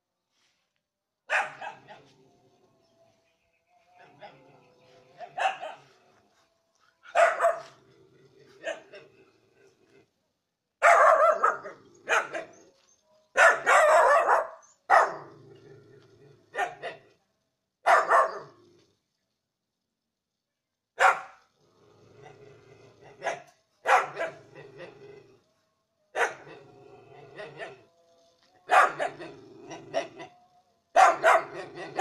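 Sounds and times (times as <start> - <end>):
dogs barking: 1.3 - 2.1, 4.0 - 9.4, 10.8 - 12.7, 13.4 - 15.4, 16.4 - 17.2, 17.8 - 18.6, 21.0 - 21.5, 23.0 - 24.9, 26.1 - 26.6, 27.2 - 27.9, 28.6 - 30.3, 30.9 - 32.0.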